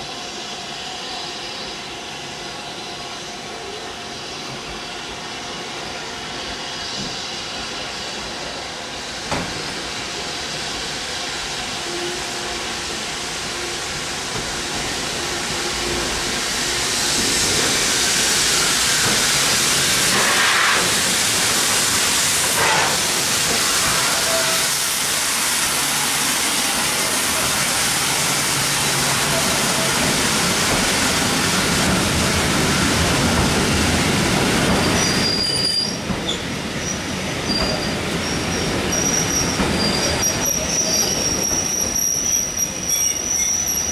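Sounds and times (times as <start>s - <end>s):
wheel squeal: 34.7s - 43.9s.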